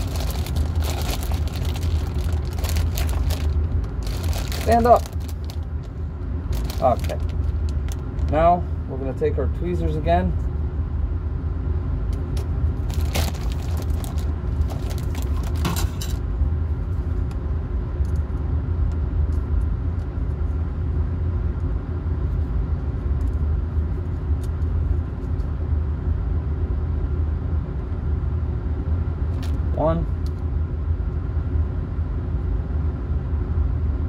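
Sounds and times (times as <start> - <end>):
plastic bag crinkling: 0.0 - 8.0, 12.8 - 16.2
low machine hum: 0.0 - 34.0.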